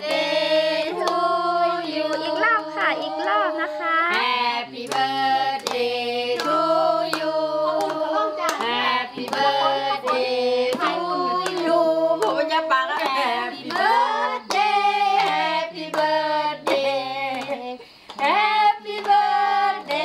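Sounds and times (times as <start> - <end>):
women and children singing: 0.0 - 20.0
hands clapping: 0.9 - 1.2, 6.4 - 12.4, 13.0 - 18.4.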